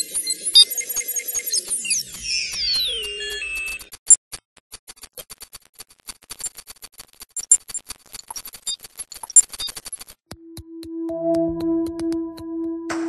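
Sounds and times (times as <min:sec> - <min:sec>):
electronic music of clicks and pings: 0:00.3 - 0:03.9, 0:10.4 - 0:13.0.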